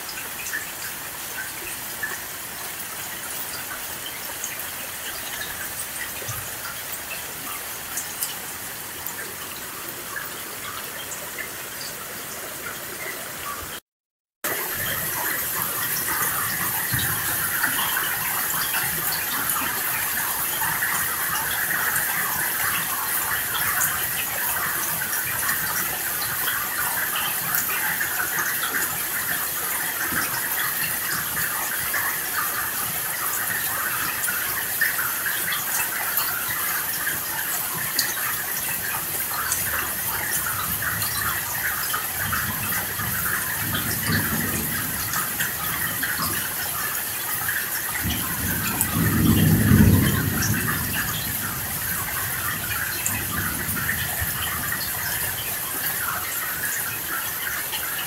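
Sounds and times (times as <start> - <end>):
heavy rain falling: 0.0 - 13.8, 14.4 - 58.0
thunder rumbling: 42.2 - 46.7, 48.0 - 54.9.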